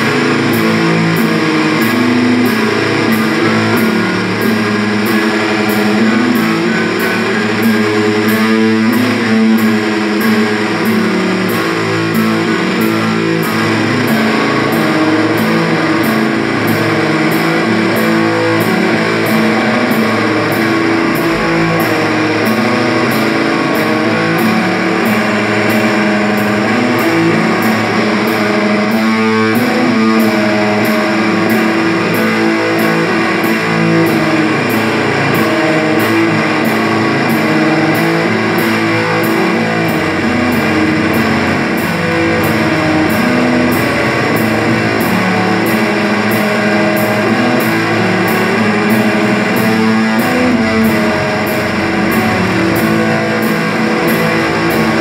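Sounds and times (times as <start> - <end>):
live rock band playing: 0.0 - 55.0.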